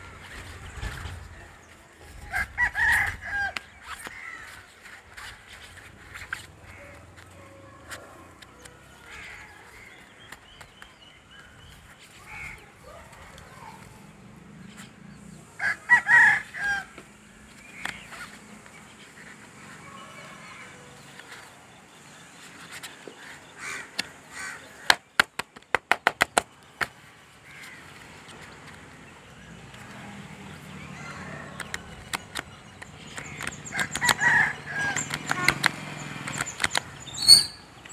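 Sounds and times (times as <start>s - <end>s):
rooster crowing: 15.6s - 17.0s, 30.8s - 31.8s, 33.7s - 35.1s
sharp clicks: 31.6s - 37.9s.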